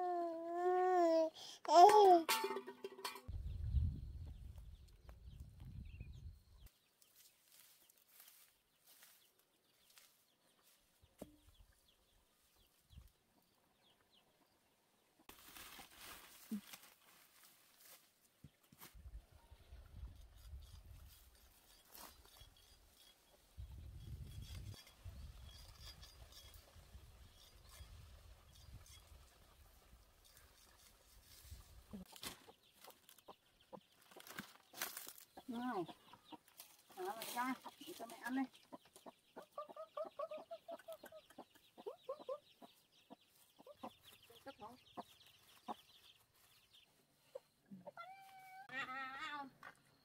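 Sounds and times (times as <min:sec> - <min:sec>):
chickens clucking: 0:35.4 - 0:45.9.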